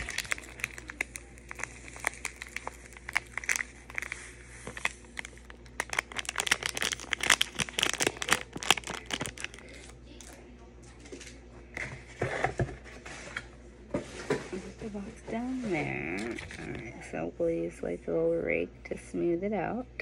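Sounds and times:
packaging crinkling and rustling: 0:00.0 - 0:10.4, 0:15.8 - 0:16.9.

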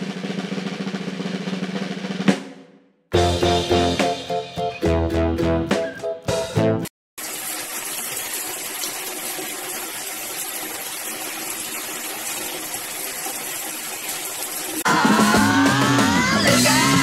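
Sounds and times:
drum music: 0:00.0 - 0:06.9, 0:14.8 - 0:17.0
shower water spraying: 0:07.2 - 0:14.9.

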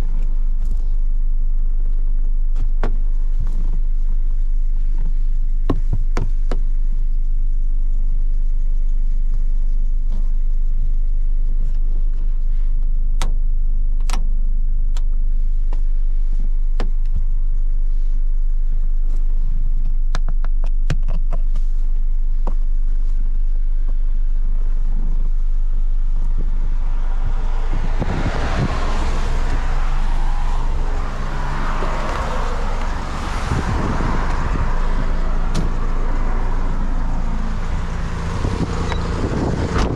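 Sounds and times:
car engine running while driving: 0:00.0 - 0:39.9
heavy low rumble: 0:00.0 - 0:39.9
broad rushing noise: 0:26.3 - 0:39.9.

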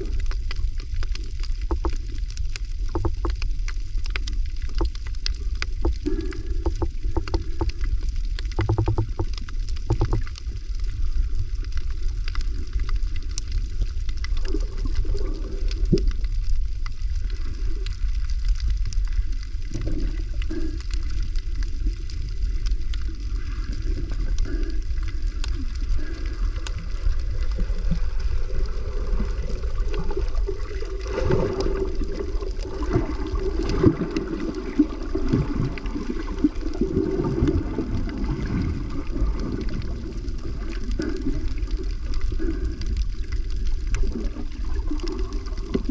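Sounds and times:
faint clicks and crackles: 0:00.0 - 0:45.9
water rumbling: 0:00.0 - 0:45.9
water swishing: 0:00.0 - 0:45.9.

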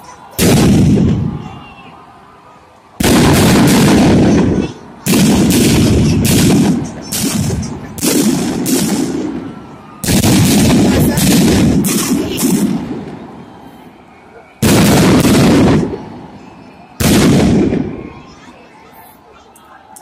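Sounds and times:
firecrackers crackling bangs: 0:00.3 - 0:01.5, 0:03.0 - 0:13.4, 0:14.6 - 0:18.2.

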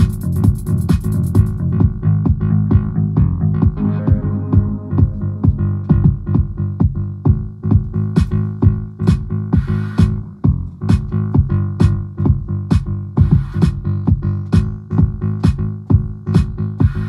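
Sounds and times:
electronic dance music beat: 0:00.0 - 0:02.4, 0:03.6 - 0:07.0, 0:11.8 - 0:15.6, 0:16.2 - 0:17.0.

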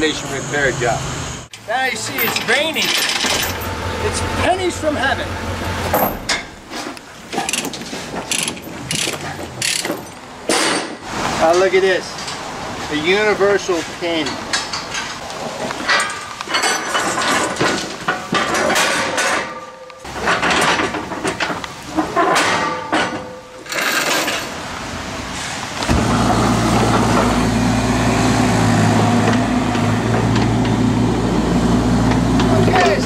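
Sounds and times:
diesel engine running: 0:00.0 - 0:06.7, 0:24.5 - 0:33.0
metal chains clanking: 0:01.7 - 0:06.6, 0:07.4 - 0:10.9, 0:15.8 - 0:24.6.

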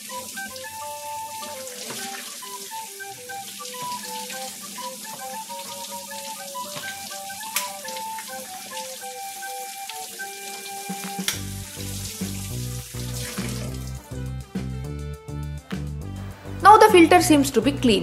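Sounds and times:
background music: 0:00.0 - 0:18.0
tap water splashing on metal filter: 0:01.3 - 0:02.4, 0:03.6 - 0:09.1, 0:09.8 - 0:14.0
pulsing bass beat: 0:13.4 - 0:17.8.

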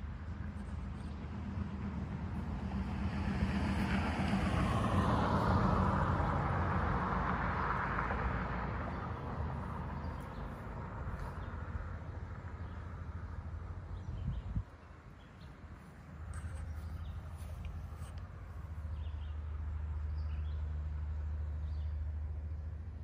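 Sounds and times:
vehicle passing by: 0:00.0 - 0:23.0.

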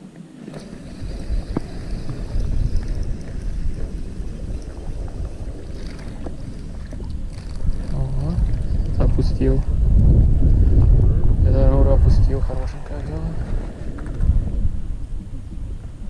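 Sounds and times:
wind buffeting microphone: 0:00.0 - 0:16.0
faint clicks: 0:00.1 - 0:09.0.

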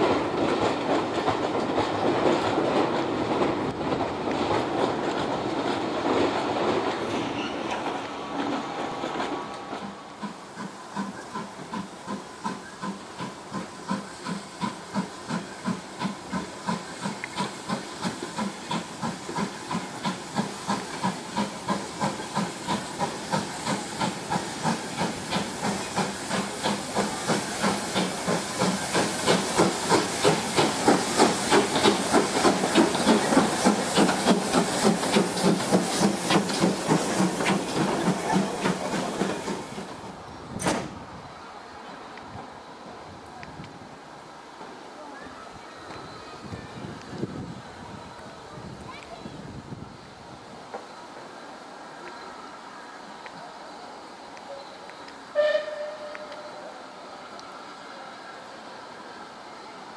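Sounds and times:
steady steam hiss: 0:00.0 - 0:59.9
steam locomotive exhaust chuffing: 0:09.7 - 0:40.8.

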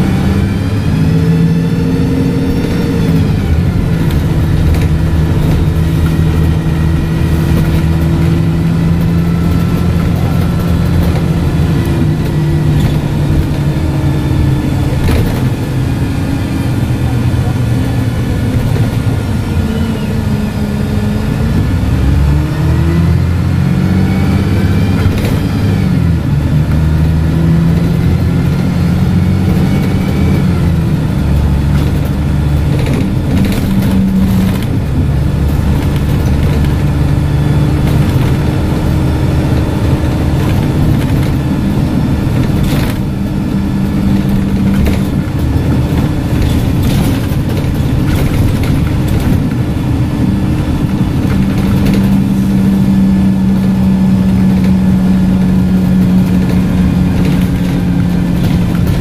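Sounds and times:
bus engine whine rising: 0:00.0 - 0:59.0.

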